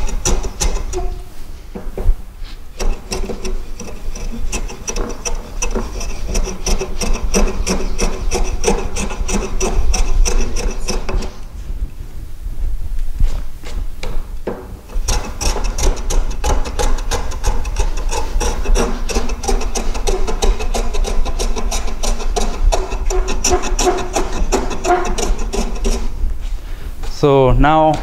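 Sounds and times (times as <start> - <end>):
hand plane strokes on wood: 0.0 - 1.4, 2.4 - 11.5, 14.9 - 26.6.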